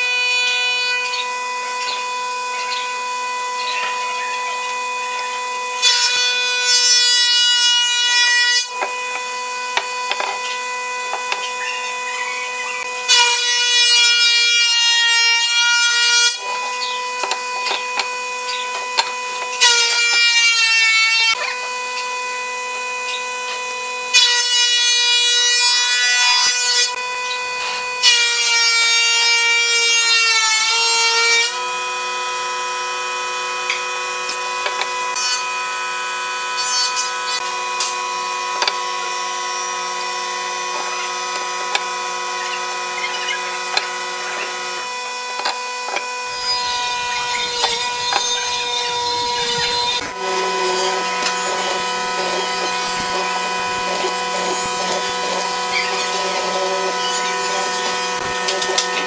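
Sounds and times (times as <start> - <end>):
wood cutting noise: 0.0 - 59.0
machine motor hum: 37.1 - 59.0.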